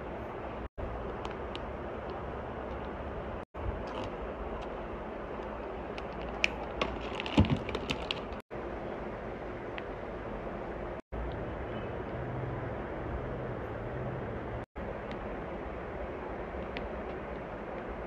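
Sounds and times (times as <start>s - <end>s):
steady background noise: 0.0s - 18.0s
plastic packaging crinkling and clicking: 5.4s - 8.4s.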